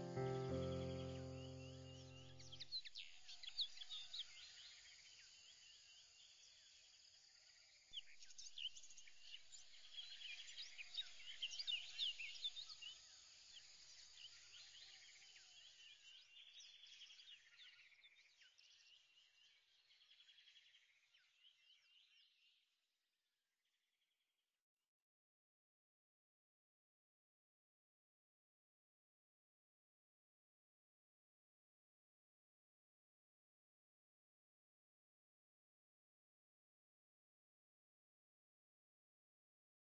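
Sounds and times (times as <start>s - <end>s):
small birds chirping: 0.0s - 6.9s, 8.0s - 22.6s.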